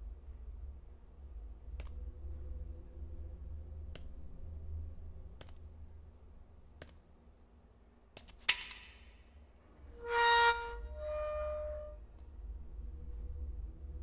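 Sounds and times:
held reedy tone: 10.0 - 12.0.

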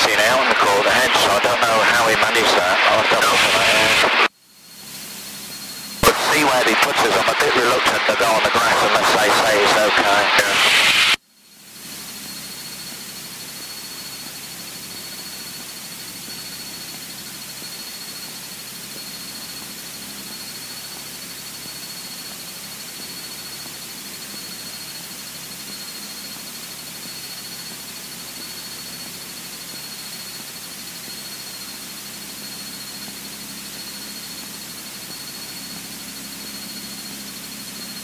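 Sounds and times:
electronic hiss: 0.0 - 4.3, 6.0 - 11.2
thin high whine: 0.0 - 38.0.

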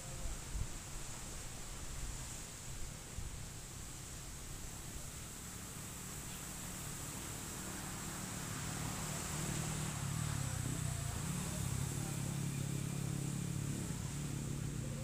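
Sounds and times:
steady hiss: 0.0 - 15.0
engine humming: 5.4 - 15.0.

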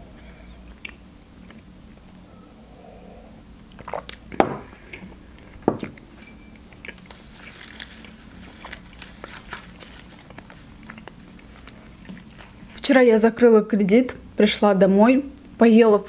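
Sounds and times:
mouth sounds of eating: 0.3 - 5.4
wet chewing clicks: 0.7 - 2.2, 10.2 - 12.6.

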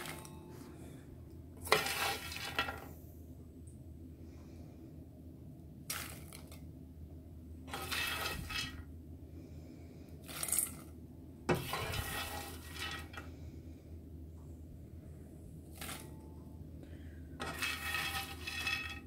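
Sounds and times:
spoon scraping popcorn in pan: 1.6 - 2.9, 7.7 - 8.9, 11.5 - 13.2, 17.4 - 19.0.

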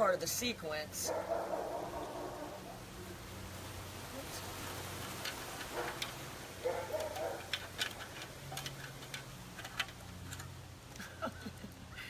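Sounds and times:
puppy rummaging in container: 5.2 - 10.6.

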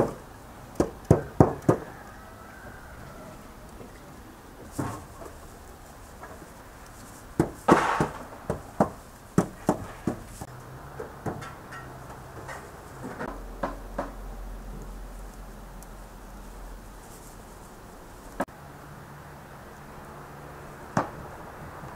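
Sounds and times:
sharp clicks and knocks from grill: 0.0 - 1.9, 6.2 - 14.2.

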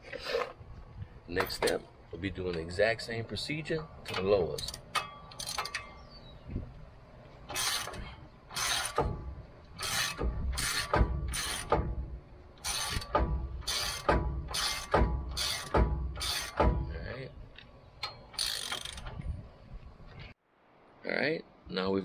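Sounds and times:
ratchet wrench clicking: 4.6 - 5.9, 7.5 - 9.1, 9.7 - 11.9, 12.6 - 16.7, 18.0 - 19.2.

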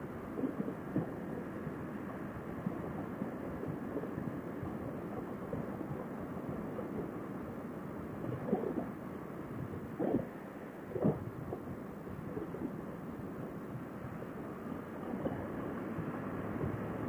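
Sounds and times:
wind rushing over microphone: 9.5 - 17.0.

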